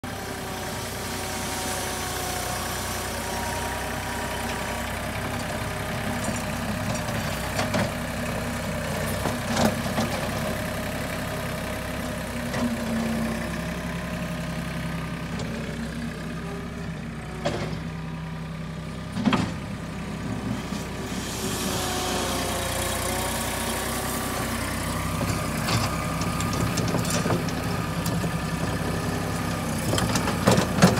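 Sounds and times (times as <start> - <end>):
tractor diesel engine running: 0.0 - 30.9.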